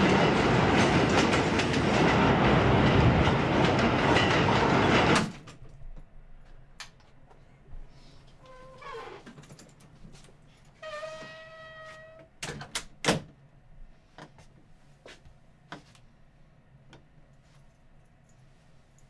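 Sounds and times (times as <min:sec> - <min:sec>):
door squeaking: 0:08.4 - 0:09.4, 0:10.8 - 0:12.3.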